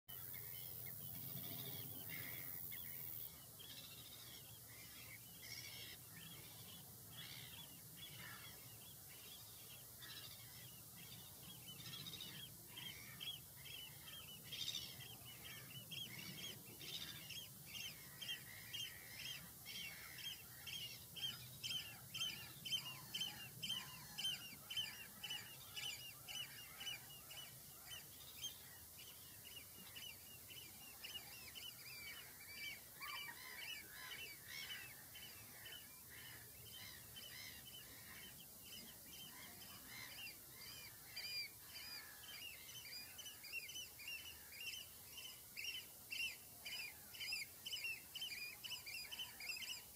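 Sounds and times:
bird harsh calls: 0.1s - 8.6s, 31.0s - 44.8s.

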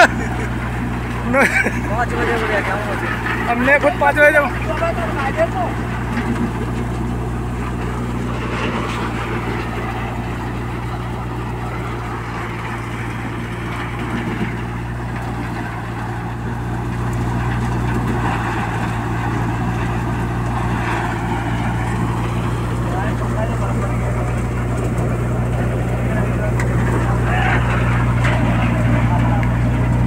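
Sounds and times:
engine low hum: 0.0s - 30.0s.

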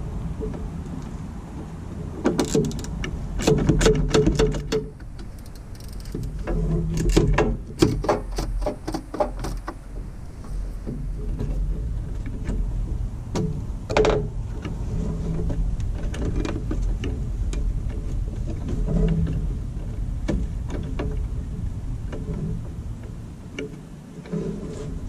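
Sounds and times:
steady low hum: 0.0s - 25.0s
ratchet wrench clicking: 5.2s - 6.3s.

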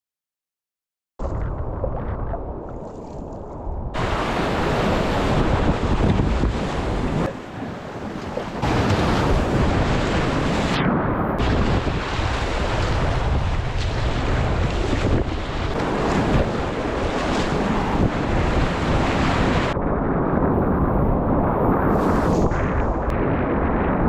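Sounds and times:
wind noise on microphone: 1.2s - 24.0s
rushing churning water: 1.9s - 10.8s, 11.4s - 19.8s.

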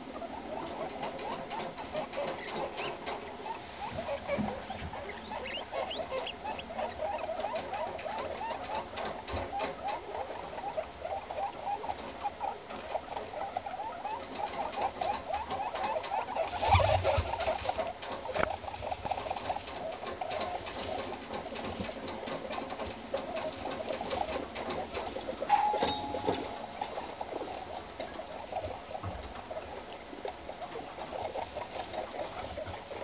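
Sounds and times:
guinea pigs calling softly: 0.0s - 33.0s
guinea pig squeak: 0.1s - 33.0s.

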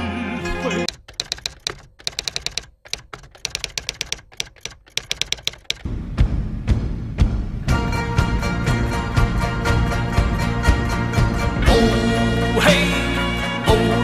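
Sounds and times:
typewriter key clacks: 0.8s - 5.9s.

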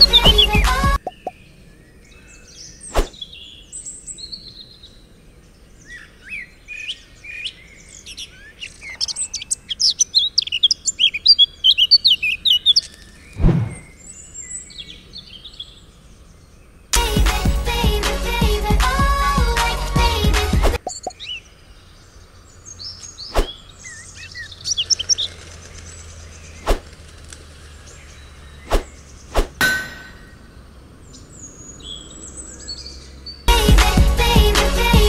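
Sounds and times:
music: 0.0s - 1.0s, 17.0s - 20.8s, 33.5s - 35.0s
small birds chirping: 0.0s - 17.0s, 20.8s - 33.5s.

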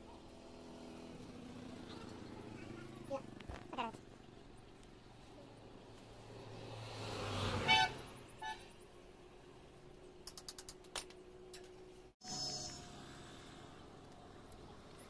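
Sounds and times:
vehicle engine passing: 0.0s - 8.4s.

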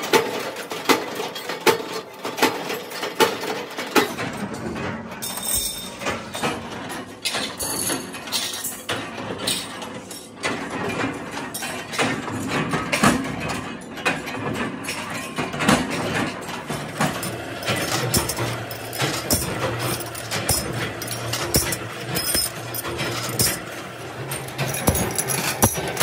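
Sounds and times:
punch press cutting steel: 16.6s - 26.0s
sharp metal clanks: 16.6s - 26.0s.

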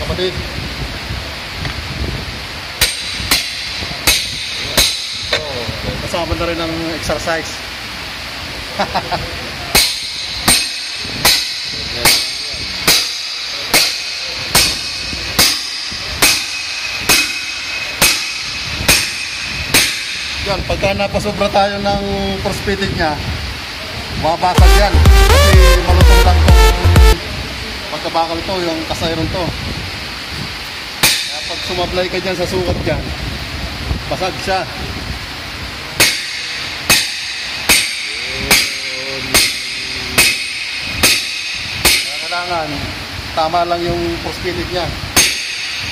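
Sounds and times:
hammer striking metal liner: 2.8s - 5.5s, 9.7s - 20.5s, 31.0s - 31.8s, 36.0s - 42.6s, 45.2s - 45.9s.

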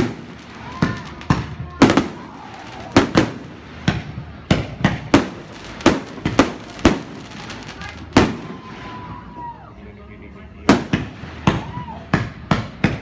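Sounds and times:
firework shells bursting: 0.0s - 8.9s.

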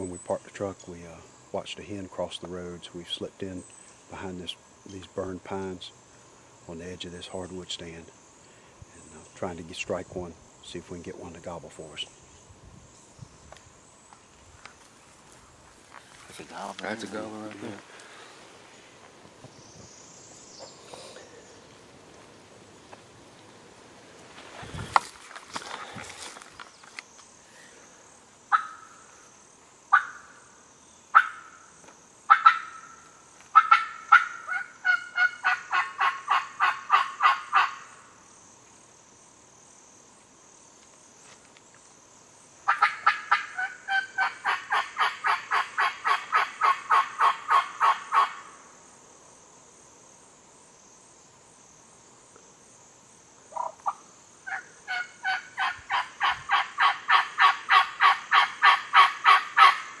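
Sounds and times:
turkey call hen yelps: 28.5s - 28.9s, 29.9s - 30.3s, 31.1s - 31.6s, 32.3s - 33.0s, 33.6s - 37.9s, 42.7s - 48.5s, 53.5s - 59.9s.

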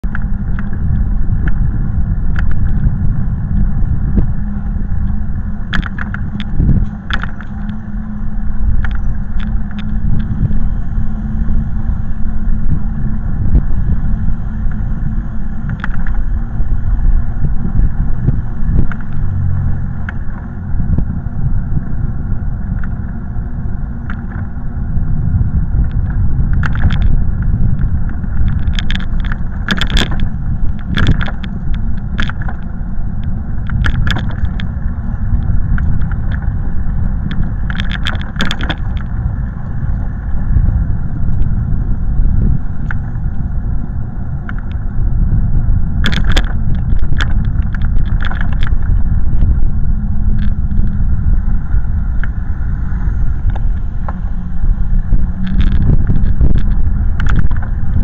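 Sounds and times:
wind and road noise rumble: 0.0s - 58.0s
short clicks and rattles: 28.1s - 34.8s, 37.2s - 39.1s, 46.0s - 49.0s.

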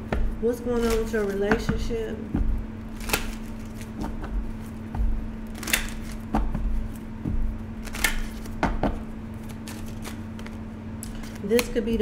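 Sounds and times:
steady hum: 0.0s - 12.0s
cards being shuffled: 0.7s - 1.6s, 2.8s - 7.1s, 7.8s - 11.8s
soft thumps: 1.4s - 2.7s, 6.2s - 7.6s
card snaps: 5.5s - 6.5s, 7.8s - 11.7s.

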